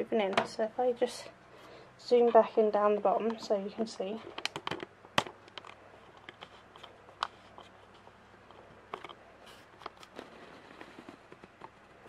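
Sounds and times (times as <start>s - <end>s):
camera handling clicks and rustles: 4.3s - 11.8s.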